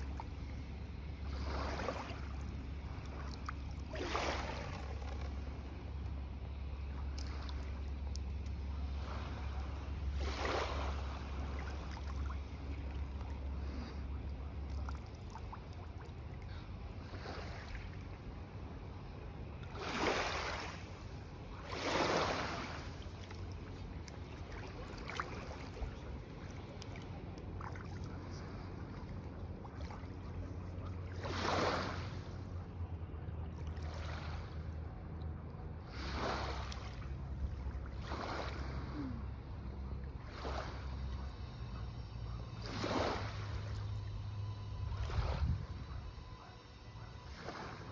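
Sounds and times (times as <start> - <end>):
small waves lapping on shore: 0.0 - 47.9
low wind rumble on microphone: 37.1 - 47.9.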